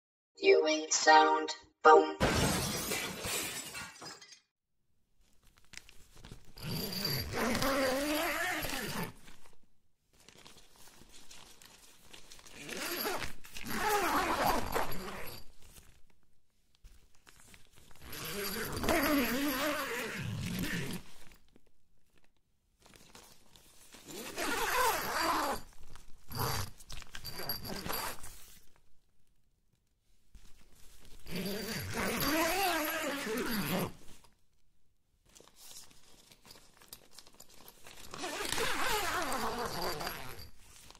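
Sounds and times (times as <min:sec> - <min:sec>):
tent zipper being pulled: 0:06.5 - 0:09.4, 0:12.5 - 0:15.4, 0:18.0 - 0:21.1, 0:24.0 - 0:25.6, 0:31.2 - 0:34.1, 0:38.1 - 0:40.6.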